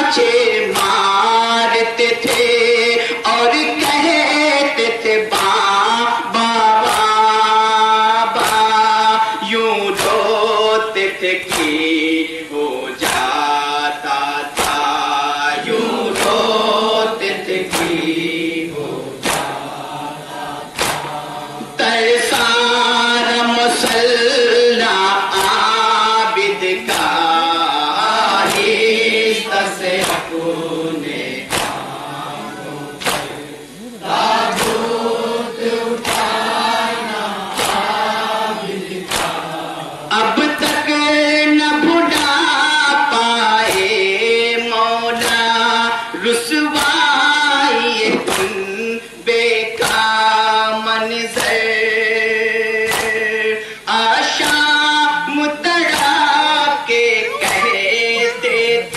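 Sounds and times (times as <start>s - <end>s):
lead reciter chanting: 0.0s - 58.9s
men chanting in chorus: 0.0s - 58.9s
hands slapping on chests: 2.2s - 2.6s, 6.8s - 7.2s, 8.4s - 8.8s, 9.9s - 10.3s, 11.4s - 12.0s, 13.0s - 13.4s, 14.5s - 15.1s, 15.7s - 16.7s, 17.5s - 22.7s, 25.4s - 25.8s, 26.9s - 32.2s, 33.0s - 39.8s, 42.1s - 42.4s, 43.6s - 44.0s, 45.2s - 45.5s, 46.8s - 47.0s, 48.1s - 48.7s, 49.8s - 50.2s, 51.4s - 51.8s, 52.9s - 53.3s, 54.4s - 54.7s, 55.8s - 56.5s, 57.4s - 57.8s.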